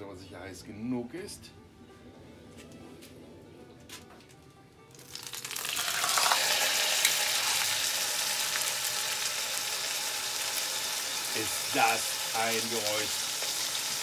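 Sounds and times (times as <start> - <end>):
meat sizzling in butter: 5.0 - 14.0.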